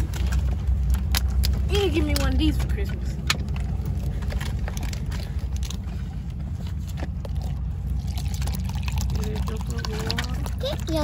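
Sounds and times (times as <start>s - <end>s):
small clicks and rustles: 0.0s - 7.7s
car cabin low rumble: 0.0s - 11.0s.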